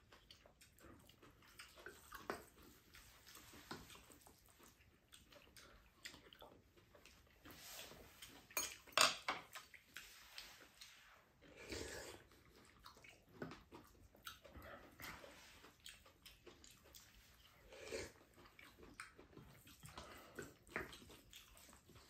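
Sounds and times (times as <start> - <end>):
spoons clinking against ceramic bowls: 8.6 - 9.4
dishes clattering: 8.6 - 9.5.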